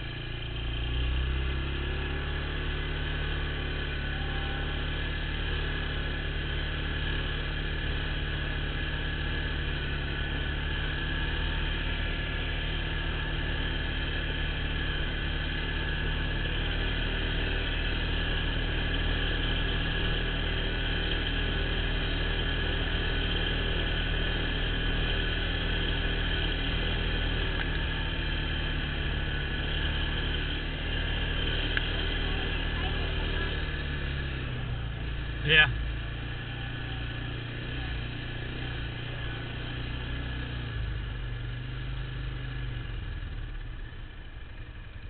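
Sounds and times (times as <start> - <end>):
atv engine running steadily: 0.0 - 45.0.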